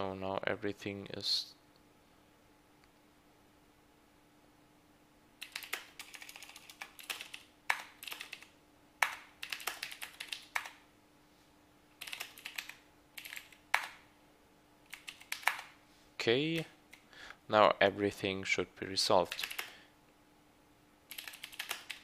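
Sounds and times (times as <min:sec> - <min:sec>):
typing on computer keyboard: 0:05.4 - 0:10.8, 0:12.0 - 0:14.0, 0:14.9 - 0:15.8, 0:19.3 - 0:19.8, 0:21.1 - 0:22.0.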